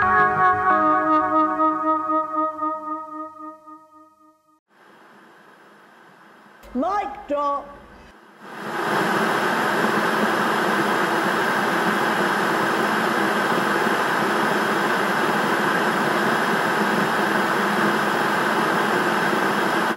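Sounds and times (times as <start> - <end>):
videotape hiss and rumble: 4.7 - 19.9.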